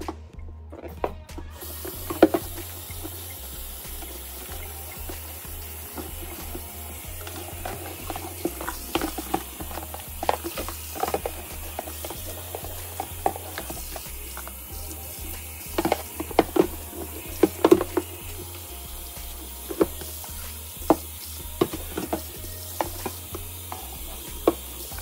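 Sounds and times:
tap running into steel sink: 0:01.6 - 0:03.2, 0:15.7 - 0:18.2, 0:21.6 - 0:25.0.

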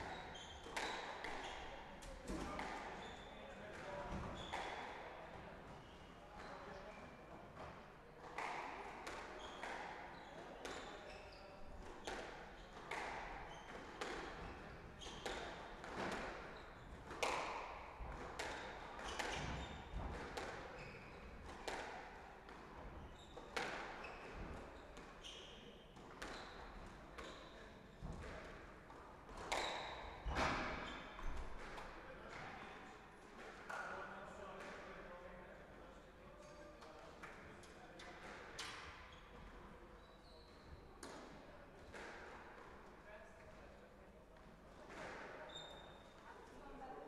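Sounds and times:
squash ball hitting rackets and walls: 0:00.0 - 0:01.6, 0:12.0 - 0:20.7, 0:21.3 - 0:25.1, 0:29.3 - 0:31.9.

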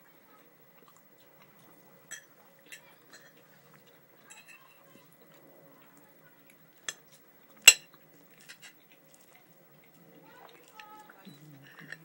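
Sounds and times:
metal fork clinking on plate: 0:04.3 - 0:04.8, 0:07.7 - 0:07.9.

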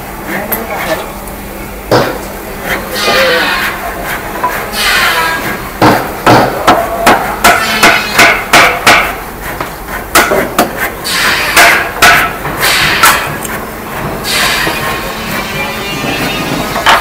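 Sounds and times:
hammer knocking on wood: 0:05.8 - 0:09.1.

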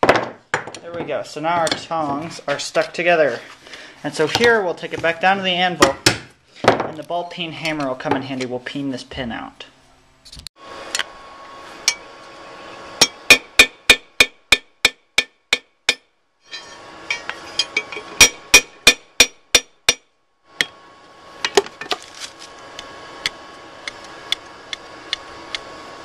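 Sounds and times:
hammer striking metal on anvil: 0:13.0 - 0:20.8.

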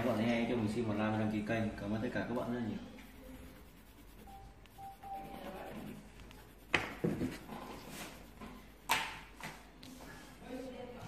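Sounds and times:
coloured pencil scratching on paper: 0:02.4 - 0:10.7.

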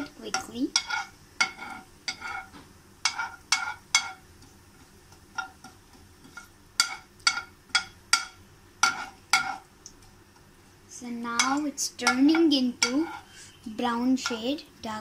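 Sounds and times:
spoon clinking against pan: 0:00.3 - 0:04.2, 0:05.4 - 0:09.6.

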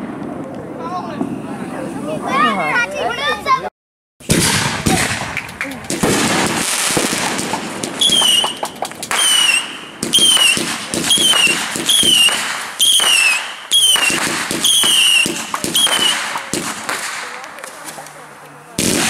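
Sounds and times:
whistling firework shots: 0:04.2 - 0:17.8, 0:18.8 - 0:19.0
fireworks crackling pops: 0:04.2 - 0:19.0.

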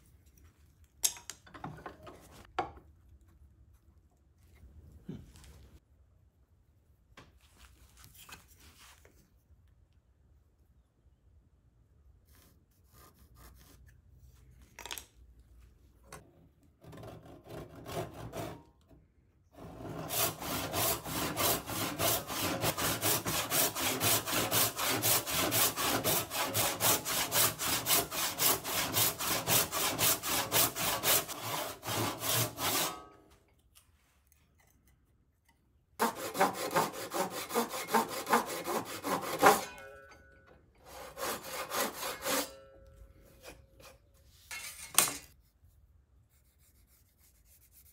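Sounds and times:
hand saw cutting wood: 0:16.8 - 0:18.7, 0:19.6 - 0:33.2, 0:36.0 - 0:39.8, 0:40.8 - 0:42.7.

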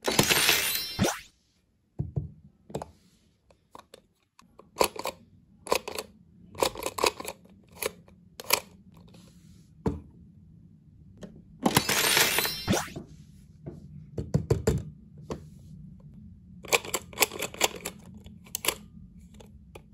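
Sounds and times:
plastic toy clicking: 0:04.6 - 0:08.7.

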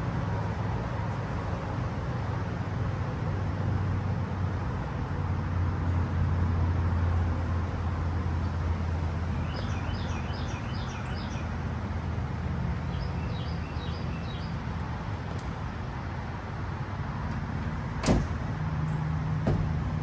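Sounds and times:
low traffic rumble: 0:00.0 - 0:20.0.

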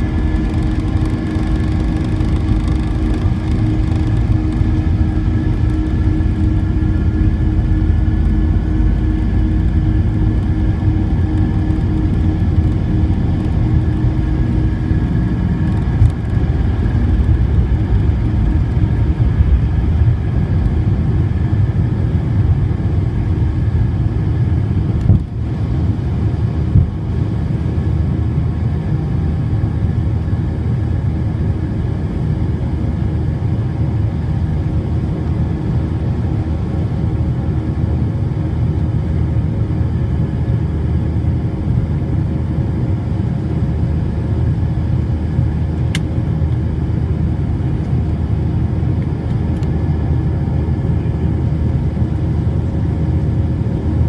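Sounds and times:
wheels rumbling on runway: 0:00.0 - 0:27.5
jet engines roaring: 0:00.0 - 0:54.0.

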